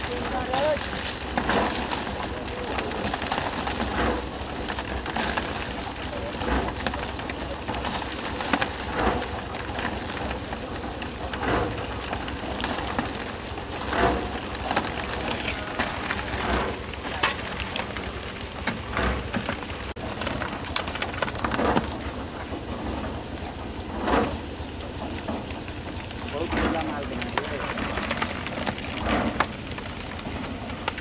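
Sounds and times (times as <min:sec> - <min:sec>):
low steady rumble: 0:00.0 - 0:31.0
wet concrete pouring down tin chute: 0:00.0 - 0:31.0.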